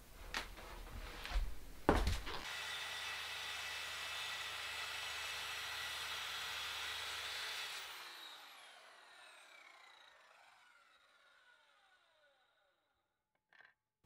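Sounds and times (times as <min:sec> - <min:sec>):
saw motor winding down whine: 0:02.4 - 0:12.8
electric saw cutting board: 0:02.4 - 0:12.9.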